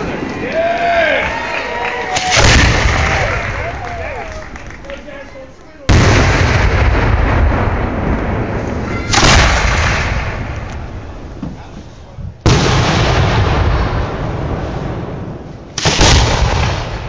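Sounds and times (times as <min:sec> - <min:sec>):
firework booms with echo: 0:02.2 - 0:04.0, 0:05.8 - 0:11.5, 0:12.2 - 0:17.0.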